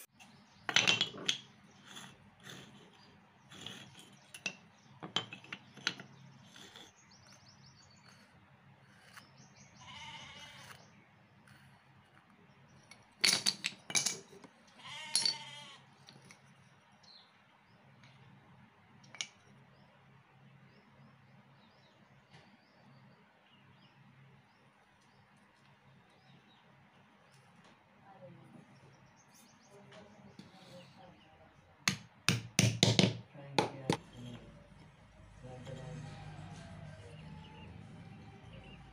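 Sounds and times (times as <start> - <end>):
wooden stool parts knocking: 0.7 - 1.5, 3.5 - 6.2, 13.2 - 14.5, 31.9 - 34.1.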